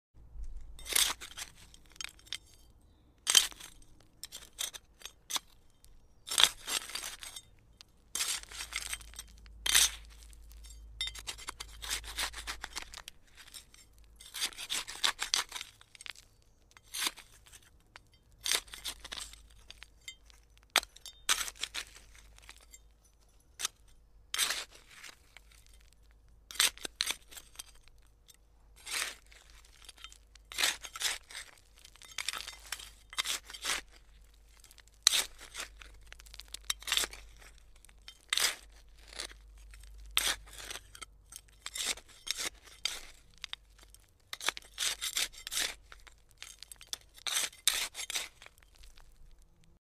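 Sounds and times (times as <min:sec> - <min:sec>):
hand trowel scraping soil: 0:00.4 - 0:28.0, 0:28.7 - 0:49.4.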